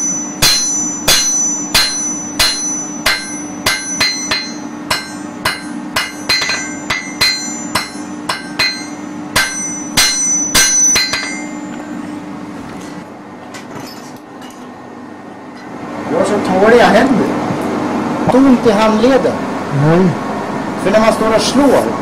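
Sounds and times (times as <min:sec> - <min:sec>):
hammer striking metal on anvil: 0:00.0 - 0:11.8
steady low hum: 0:00.0 - 0:22.0.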